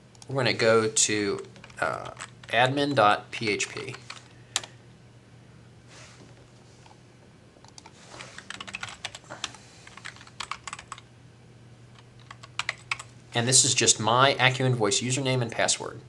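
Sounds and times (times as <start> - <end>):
faint steady hum: 0.0 - 16.0
keyboard typing: 1.3 - 2.6, 3.7 - 4.7, 7.6 - 11.0, 11.9 - 13.1.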